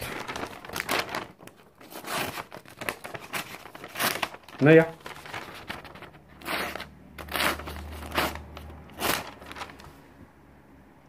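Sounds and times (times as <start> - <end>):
knife cutting paper: 0.0 - 10.0
person talking: 4.6 - 5.1.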